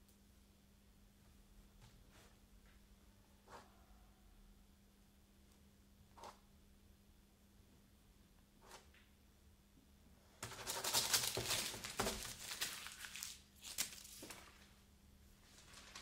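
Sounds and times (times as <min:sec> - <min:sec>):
paper crinkling: 0:10.4 - 0:14.8, 0:15.4 - 0:16.0.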